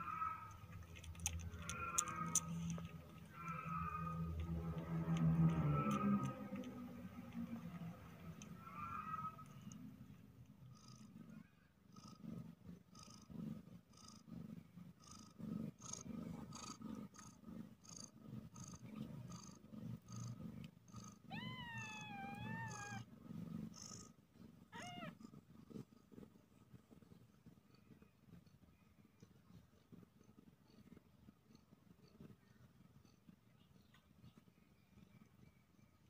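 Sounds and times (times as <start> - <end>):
cat purring: 0.0 - 36.0
kitten mewing: 24.7 - 25.2.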